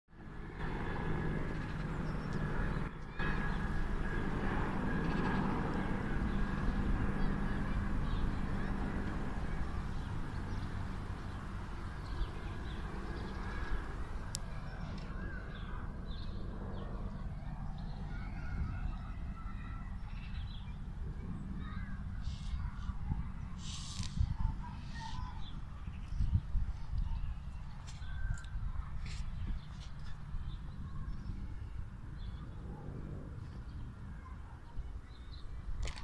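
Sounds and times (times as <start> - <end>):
low outdoor rumble: 0.1 - 36.0.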